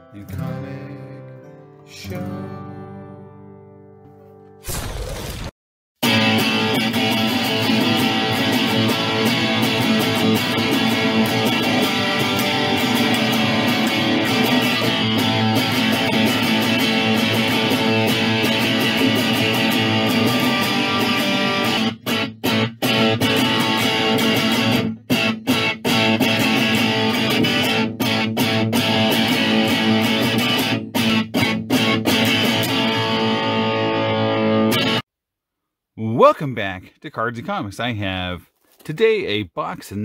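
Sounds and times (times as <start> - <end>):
strummed guitar music: 0.0 - 4.6, 6.0 - 35.0.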